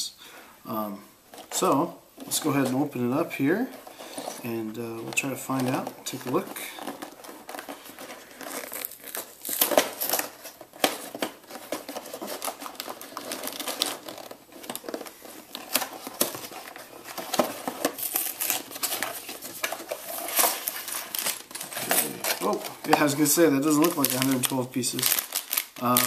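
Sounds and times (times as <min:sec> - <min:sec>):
cardboard box tearing open: 0:05.5 - 0:15.0.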